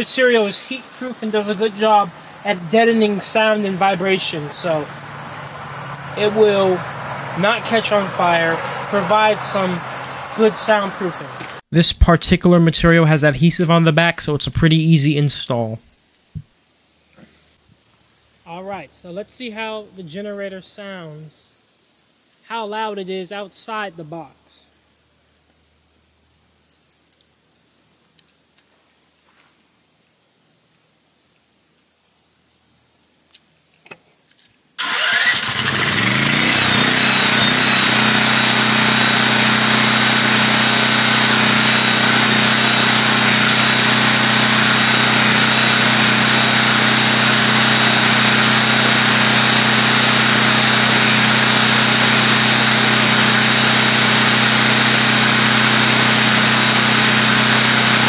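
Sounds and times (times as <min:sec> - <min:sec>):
insects chirping: 0:00.0 - 0:11.7, 0:13.6 - 0:35.6
portable generator running: 0:00.0 - 0:15.8, 0:34.8 - 0:58.0.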